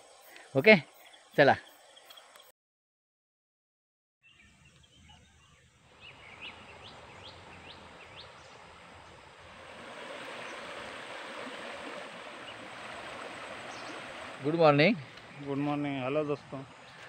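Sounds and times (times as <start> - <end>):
bird chirping: 0.0 - 2.5, 4.2 - 9.2, 12.3 - 17.0
river water flowing: 5.8 - 17.0.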